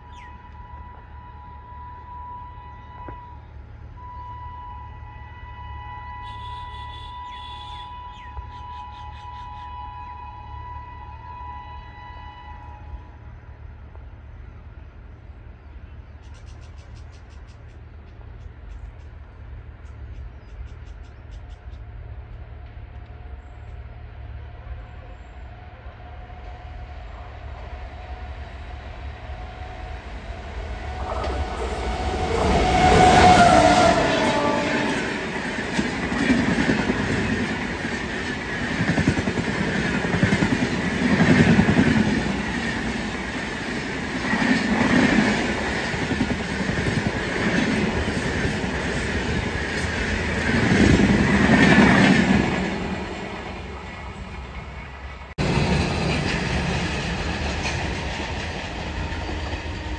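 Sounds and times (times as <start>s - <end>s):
train rumbling past: 0.0s - 59.9s
brief falling tone: 29.8s - 35.2s
train wheels clattering on rails: 30.9s - 53.6s, 55.4s - 59.9s.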